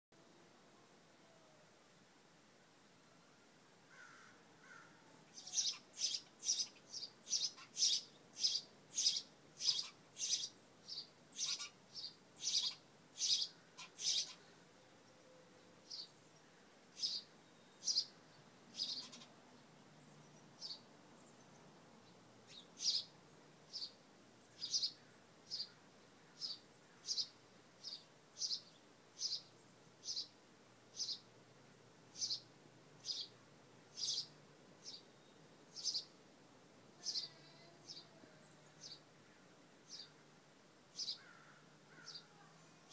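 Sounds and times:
sparrow chirping: 0:05.3 - 0:14.5, 0:15.8 - 0:16.4, 0:17.0 - 0:19.4, 0:20.0 - 0:21.4, 0:22.4 - 0:23.1, 0:23.7 - 0:31.3, 0:32.1 - 0:36.2, 0:37.0 - 0:39.1, 0:39.9 - 0:40.2, 0:41.0 - 0:42.9.

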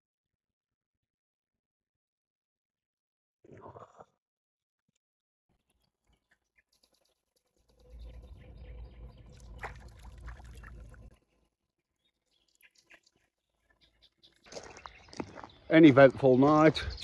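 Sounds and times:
water sloshing and splashing: 0:09.2 - 0:11.2.

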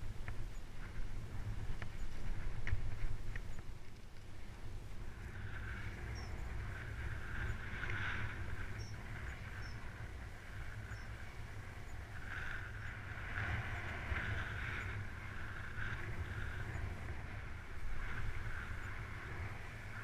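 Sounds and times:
bike tyre rushing: 0:00.0 - 0:20.0
wind rumble on microphone: 0:00.0 - 0:20.0.

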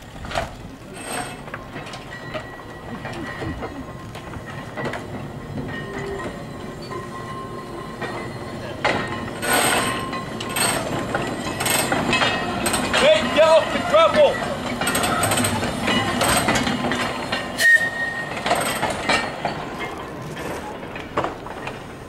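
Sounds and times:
tram clunks: 0:00.0 - 0:22.0
wheels clicking over rail joints: 0:00.0 - 0:22.0
thin wheel squeal: 0:17.6 - 0:18.8.

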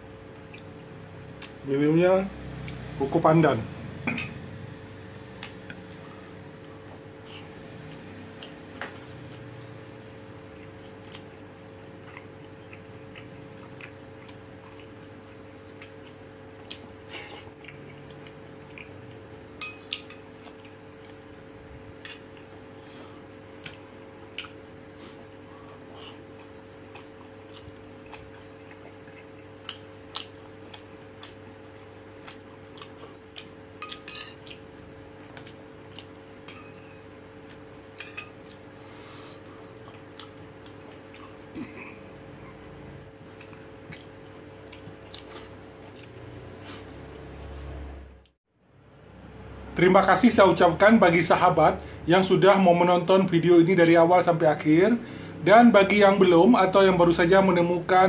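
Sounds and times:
steady low hum: 0:00.0 - 0:58.0
chewing: 0:10.4 - 0:21.3, 0:23.5 - 0:36.7, 0:39.6 - 0:41.7, 0:43.3 - 0:47.3.

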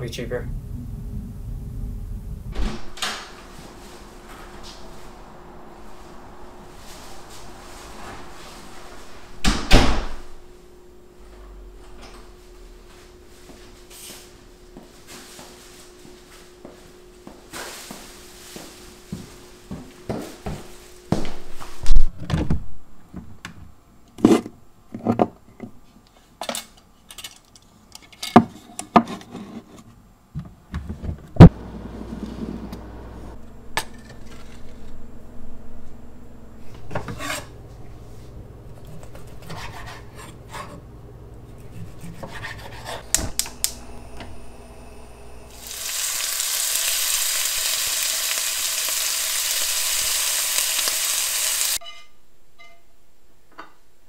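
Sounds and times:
low steady hum: 0:00.0 - 0:21.7, 0:30.4 - 0:46.0
chicken sizzling in hot oil: 0:45.4 - 0:51.8.

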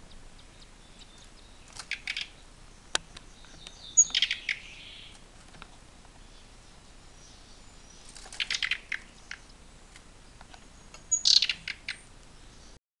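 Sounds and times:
nestlings chirping: 0:00.0 - 0:12.8.

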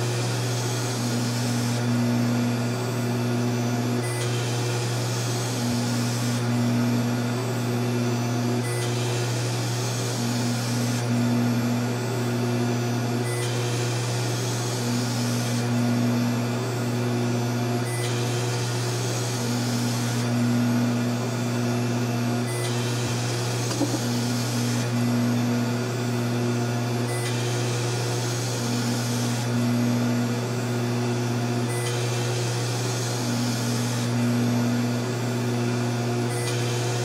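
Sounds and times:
spindle motor humming: 0:00.0 - 0:37.0
cutting hiss and whine: 0:22.4 - 0:25.3.

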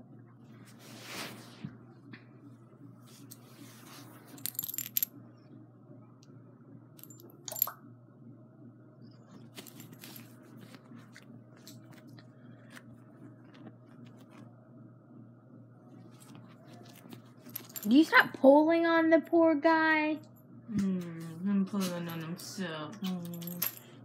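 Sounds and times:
soft rustling of fur: 0:00.6 - 0:01.8.

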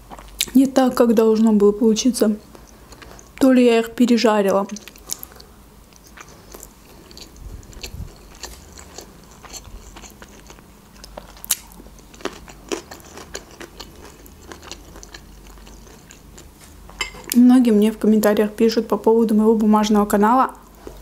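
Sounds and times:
chewing rice: 0:02.5 - 0:03.4, 0:04.7 - 0:17.4.

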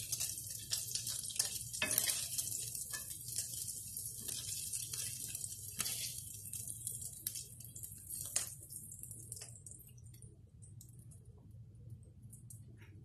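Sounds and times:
tongs clicking against pan: 0:00.0 - 0:10.0
bacon sizzling in a frying pan: 0:00.0 - 0:10.1.

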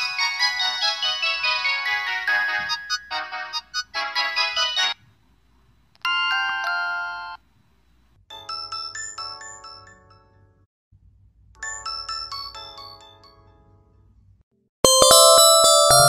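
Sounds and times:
bell-like chime jingle: 0:14.9 - 0:16.0
held electronic chord: 0:14.9 - 0:16.0.

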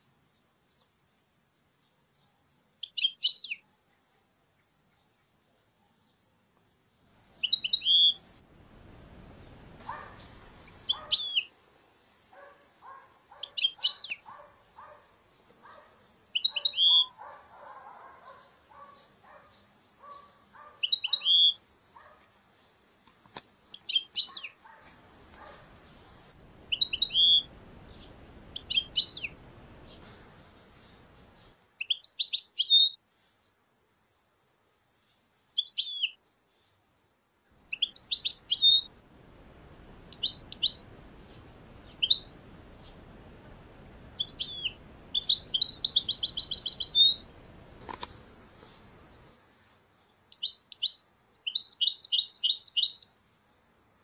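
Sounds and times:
goldfinches twittering: 0:07.2 - 0:08.3, 0:09.8 - 0:11.5, 0:16.2 - 0:17.4, 0:25.4 - 0:31.5, 0:37.7 - 0:38.9, 0:39.9 - 0:43.1, 0:44.0 - 0:49.4.

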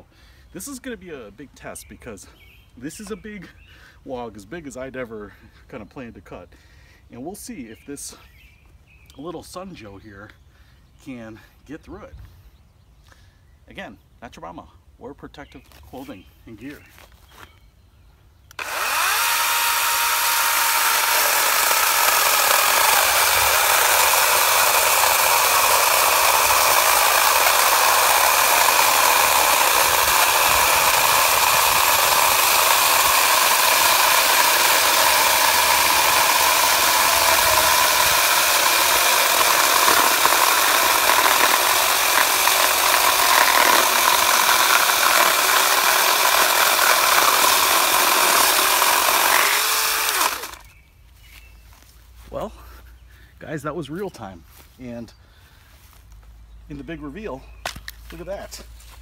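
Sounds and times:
electric chainsaw cutting log: 0:18.5 - 0:50.7.

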